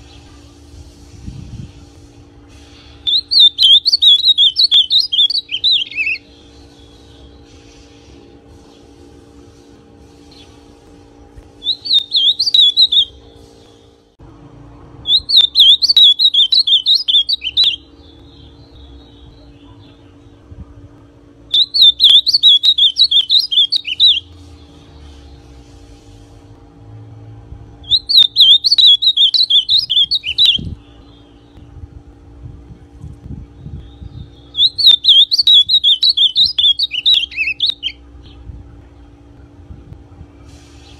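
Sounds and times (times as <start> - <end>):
bird singing warbling phrases: 3.0 - 7.4, 11.6 - 13.2, 15.0 - 20.4, 21.5 - 24.3, 27.8 - 31.7, 33.6 - 38.4.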